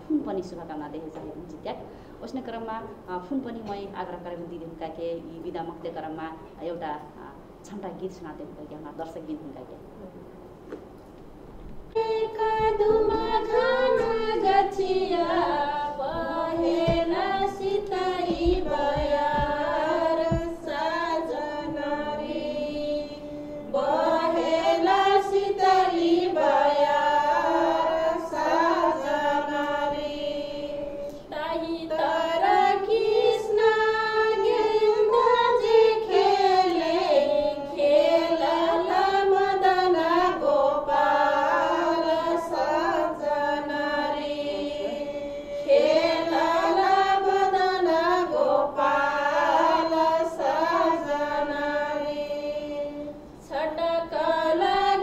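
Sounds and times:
women singing folk song: 11.9s - 55.0s.

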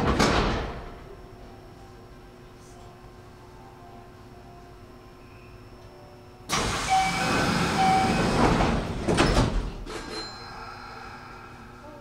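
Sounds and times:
doors rattling: 6.6s - 9.9s
short beeps: 6.9s - 8.4s.

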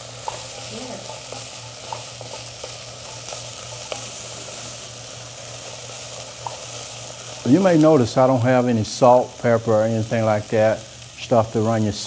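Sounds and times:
wooden spoon stirring: 0.0s - 4.8s
vegetables sizzling in a pot: 0.0s - 12.0s.

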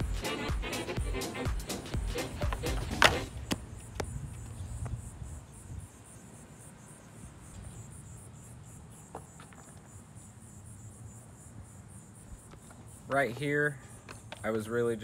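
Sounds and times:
insects chirping: 0.0s - 15.0s
skateboard clacks on concrete: 2.2s - 4.1s.

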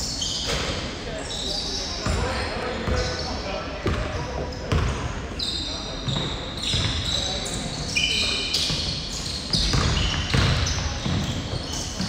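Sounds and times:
sneakers squeaking: 0.0s - 12.0s.

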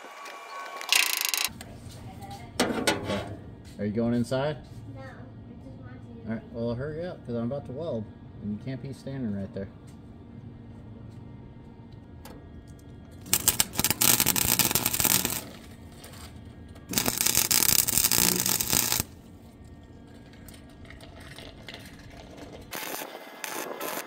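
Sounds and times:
welder arc crackling: 0.0s - 1.5s, 13.2s - 19.3s, 22.4s - 24.0s.

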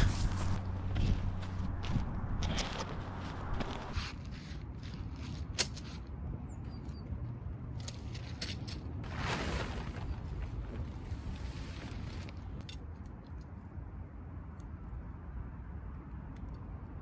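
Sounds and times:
wind rumble on microphone: 0.0s - 4.0s
nylon tent fabric rustling: 9.0s - 12.3s.

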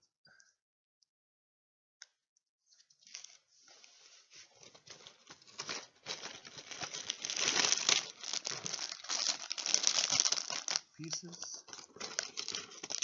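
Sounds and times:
cardboard and plastic bags crinkling: 4.4s - 13.0s.

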